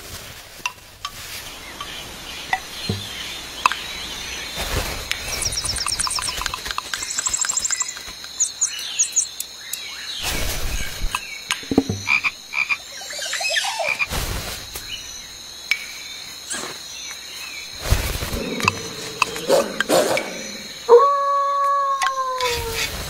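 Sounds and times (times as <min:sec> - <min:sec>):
frog croaking: 0:11.6 - 0:14.1, 0:18.2 - 0:21.3.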